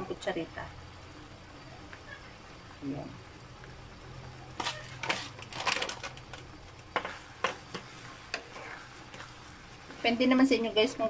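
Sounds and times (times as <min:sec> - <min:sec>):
wooden spatula stirring in a pan: 0:06.1 - 0:11.0
spatula knocking and scraping pan: 0:06.8 - 0:10.6.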